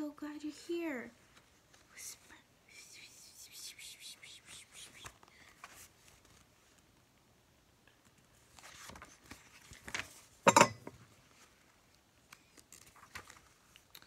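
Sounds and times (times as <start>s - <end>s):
book pages turning: 8.4s - 10.3s, 12.2s - 14.0s.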